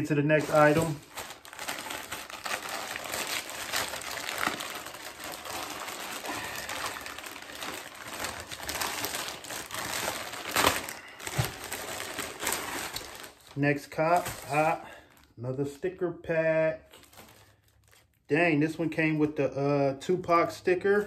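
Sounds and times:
plastic packaging crinkling: 0.0 - 15.3, 16.9 - 18.3.

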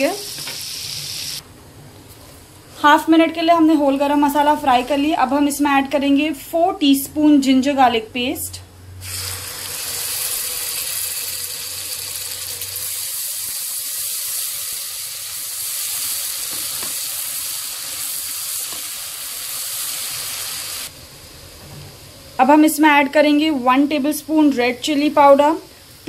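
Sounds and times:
paste sizzling in hot oil: 9.0 - 20.9.

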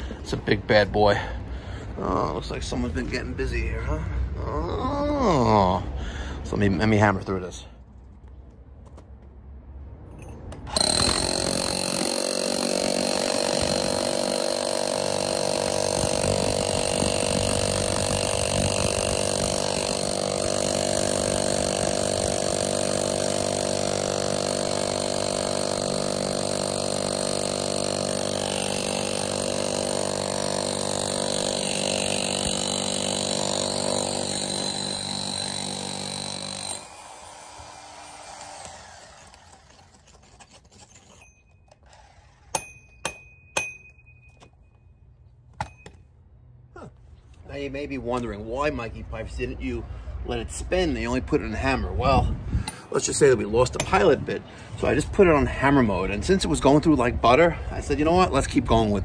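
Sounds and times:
rotary hammer hammering concrete: 10.7 - 36.9, 42.5 - 44.0.

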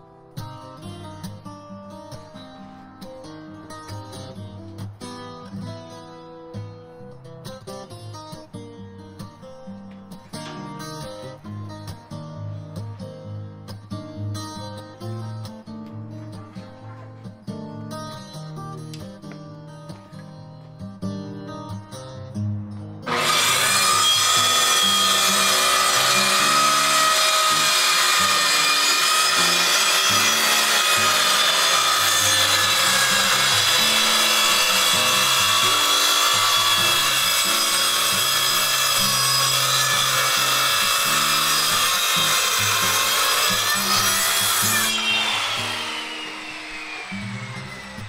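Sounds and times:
circular saw cutting wood: 23.1 - 48.0
saw blade spinning down: 23.1 - 48.0.

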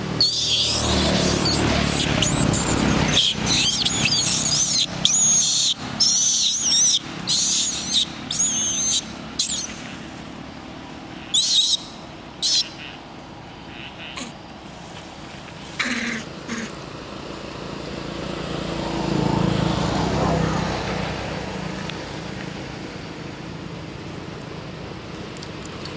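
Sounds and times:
baby monkey crying: 0.1 - 9.8, 11.2 - 13.0, 13.7 - 14.4, 15.8 - 16.8.

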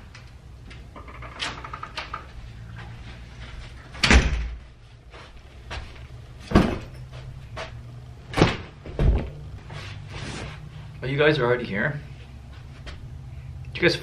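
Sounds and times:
door shutting with heavy thump: 4.0 - 4.6, 6.5 - 6.9, 8.3 - 9.4
sharp knocks and thuds: 6.4 - 6.9, 8.3 - 9.4.

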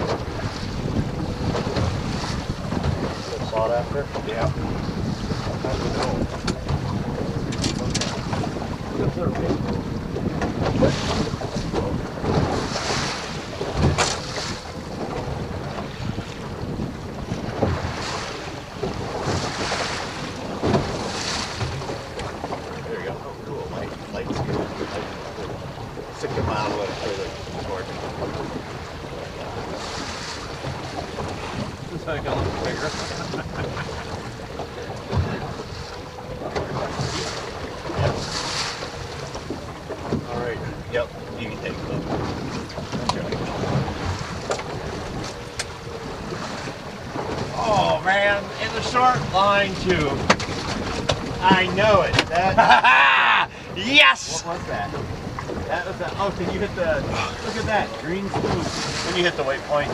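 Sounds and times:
water slapping boat hull: 0.0 - 59.9
wind buffeting microphone: 0.0 - 59.9
dull knocks: 20.6 - 22.7, 49.8 - 52.4.

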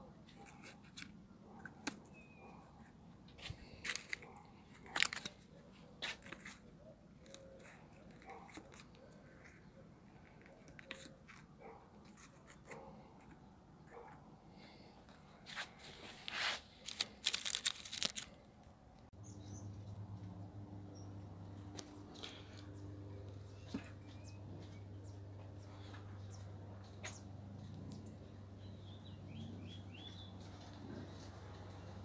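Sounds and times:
paper cards rustling and scraping: 0.2 - 18.6
steady low hum: 19.2 - 32.0.

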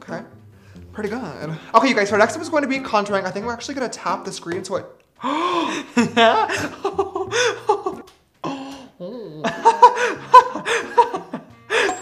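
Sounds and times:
man laughing: 5.4 - 12.0
man making vocal noises: 6.3 - 9.5.

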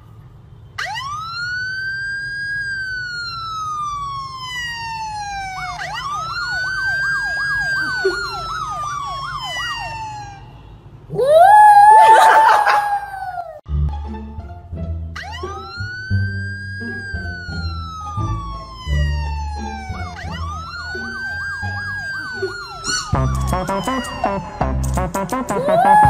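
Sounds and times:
emergency siren wailing: 0.0 - 13.6, 15.2 - 26.0
dog howling: 11.1 - 13.6, 25.6 - 26.0.

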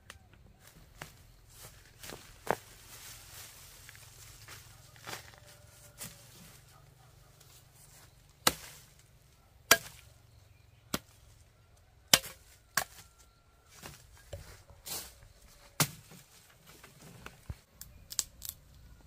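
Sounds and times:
blade chopping: 9.7 - 10.1, 12.1 - 13.0.

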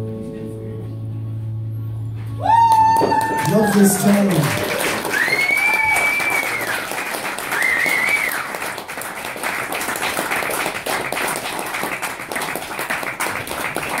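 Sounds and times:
audience applauding: 2.4 - 14.0
high whistle: 5.1 - 6.9, 7.5 - 8.5.

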